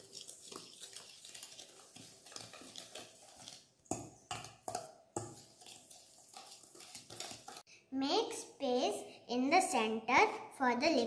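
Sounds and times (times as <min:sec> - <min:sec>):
whisk scraping metal bowl: 0:00.0 - 0:07.7.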